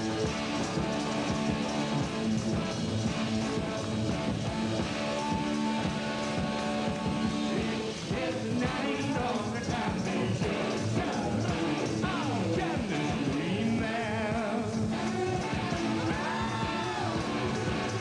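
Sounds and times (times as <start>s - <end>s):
drums: 0.0s - 18.0s
electric guitar: 0.0s - 18.0s
man singing: 7.5s - 16.4s.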